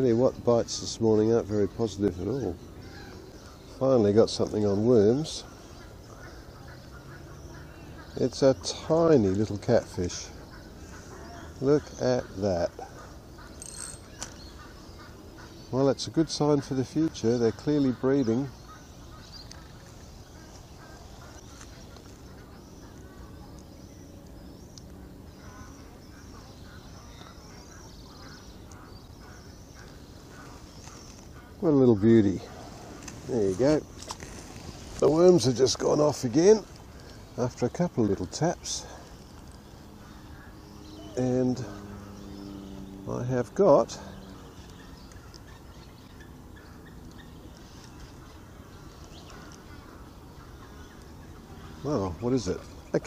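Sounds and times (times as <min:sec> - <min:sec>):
small birds chirping: 0:00.0 - 0:53.0
ducks quacking: 0:04.6 - 0:13.6, 0:14.5 - 0:23.3, 0:25.3 - 0:33.8, 0:48.0 - 0:53.0.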